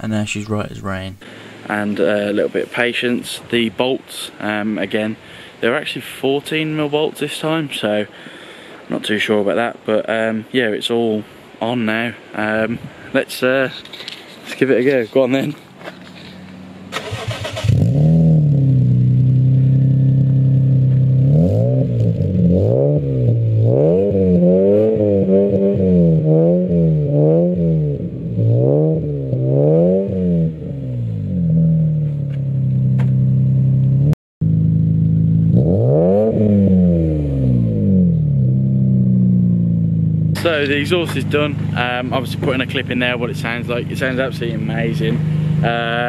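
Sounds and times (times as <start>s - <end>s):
car engine starting and revving: 16.1s - 46.0s.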